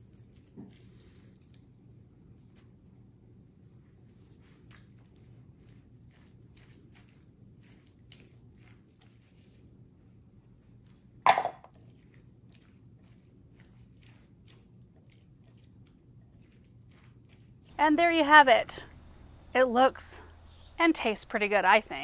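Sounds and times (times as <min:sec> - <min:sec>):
low background hum: 0:00.0 - 0:22.0
chewing with crunching clicks: 0:04.6 - 0:09.7, 0:10.5 - 0:17.7.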